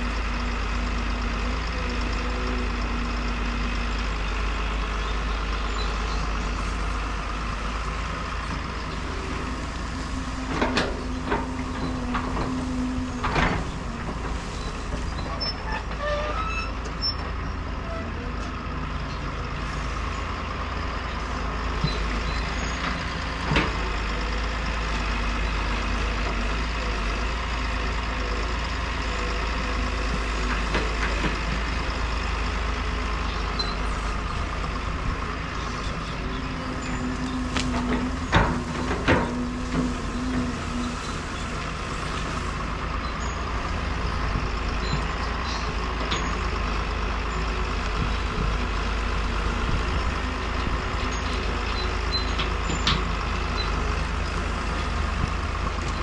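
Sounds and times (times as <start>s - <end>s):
excavator diesel engine running: 0.0s - 56.0s
dirt and brush dragging: 29.7s - 44.2s.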